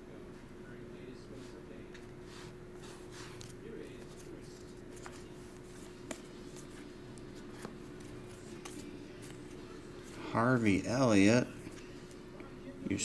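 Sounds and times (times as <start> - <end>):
faint steady hum: 0.0 - 13.0
cards sliding: 2.8 - 10.2.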